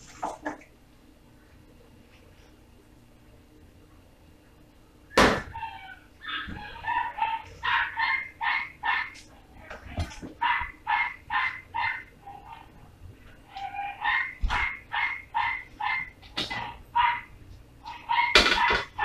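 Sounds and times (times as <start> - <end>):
animal high repeated calls: 5.4 - 9.2, 10.4 - 12.7, 13.4 - 19.0.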